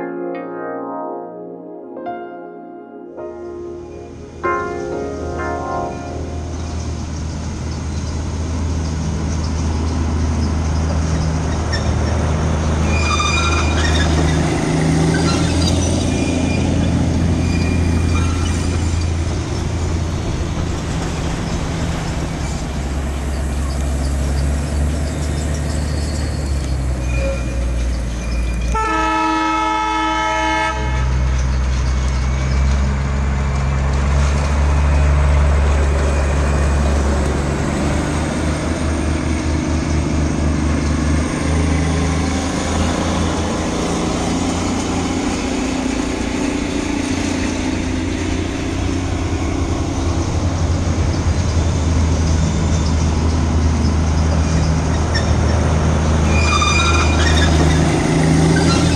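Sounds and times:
diesel locomotive engine rumble: 0:03.5 - 0:58.9
locomotive horn: 0:28.7 - 0:31.5.

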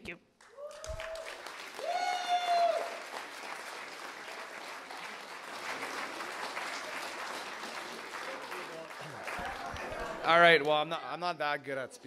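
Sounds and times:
long high cheer: 0:00.4 - 0:05.0
audience applauding: 0:00.4 - 0:10.8.

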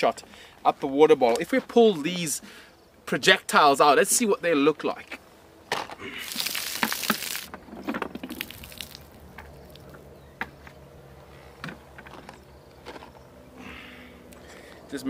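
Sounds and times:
plastic bottle crackling: 0:06.1 - 0:09.9
water splashing onto ground: 0:06.1 - 0:09.9.

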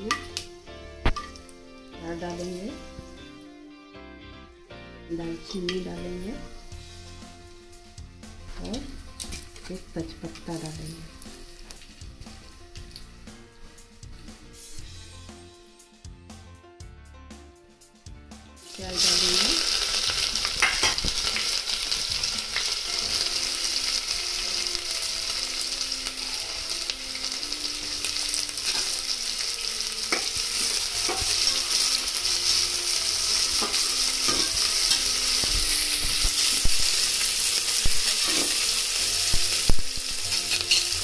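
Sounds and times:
onions sizzling in oil: 0:00.0 - 0:03.3, 0:05.2 - 0:15.0, 0:18.6 - 0:41.0
metal spatula taps and scrapes: 0:31.1 - 0:31.4.

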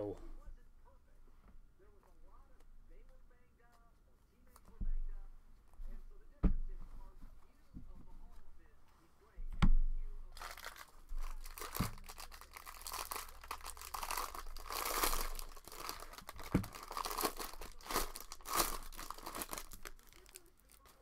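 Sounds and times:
foil wrapper tearing and crinkling: 0:10.4 - 0:21.0.

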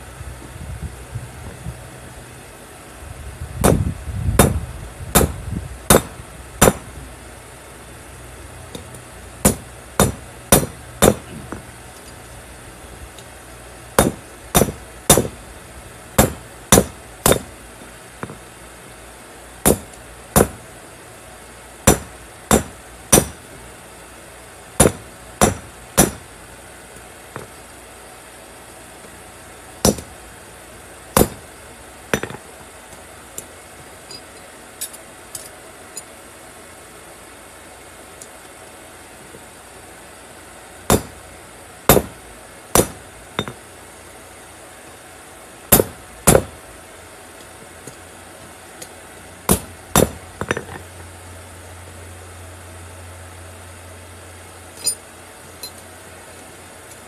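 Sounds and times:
hammer striking metal on anvil: 0:05.2 - 0:06.8, 0:09.4 - 0:11.3, 0:14.0 - 0:15.3, 0:16.2 - 0:17.5, 0:21.9 - 0:23.4, 0:24.8 - 0:26.2, 0:29.8 - 0:30.1, 0:32.2 - 0:32.4, 0:40.9 - 0:41.2, 0:49.5 - 0:50.7, 0:54.8 - 0:55.0.

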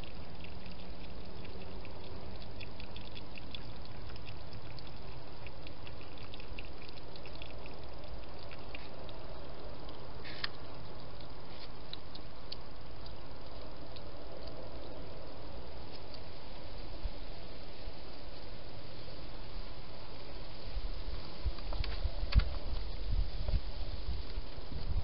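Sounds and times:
hedgehog eating wet clicks: 0:00.0 - 0:16.4
steady hiss: 0:08.6 - 0:25.0.

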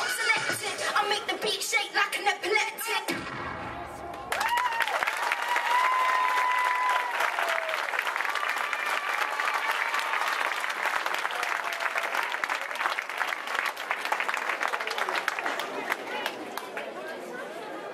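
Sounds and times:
high held cheers: 0:03.8 - 0:13.2
audience applauding: 0:04.2 - 0:16.9.

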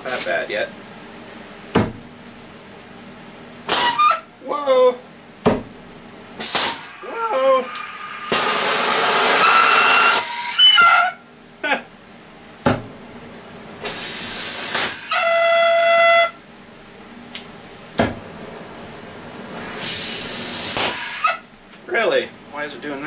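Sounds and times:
torch whistle: 0:03.7 - 0:04.2, 0:06.4 - 0:11.2, 0:13.9 - 0:16.4, 0:19.8 - 0:21.4
cutting torch hissing: 0:06.4 - 0:10.6, 0:13.8 - 0:15.2, 0:19.8 - 0:21.4.

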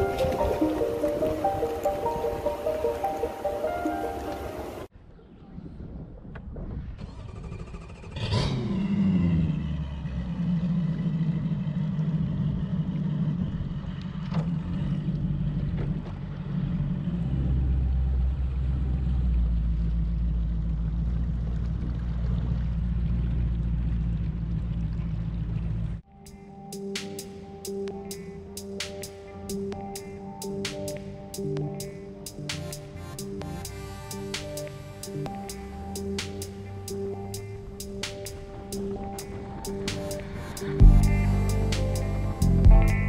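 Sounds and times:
outboard motor starting and idling: 0:07.0 - 0:08.6, 0:09.2 - 0:26.0.

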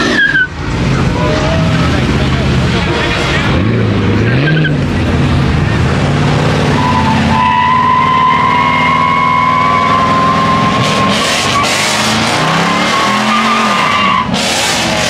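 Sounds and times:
car engine at high revs: 0:00.0 - 0:15.0
tyres squealing: 0:06.6 - 0:15.0.

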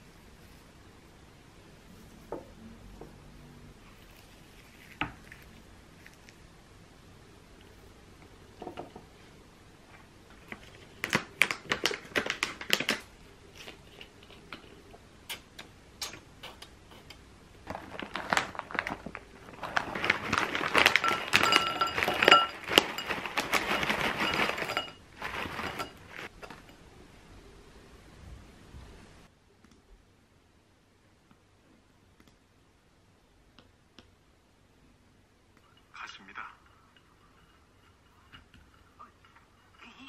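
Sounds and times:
plastic pouch crinkling: 0:10.4 - 0:13.8, 0:17.6 - 0:26.4
granola pouring into bowl: 0:17.6 - 0:26.6
glass bowl ringing: 0:21.0 - 0:23.2.

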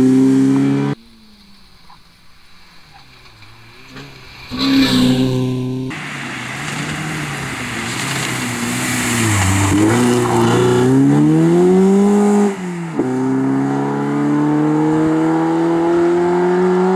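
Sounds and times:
rally car engine revving: 0:00.0 - 0:16.9
gravel hissing under tyres: 0:01.0 - 0:11.4.

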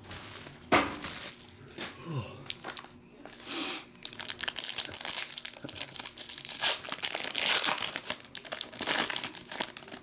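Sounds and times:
foil wrapper tearing and crinkling: 0:02.6 - 0:10.0.

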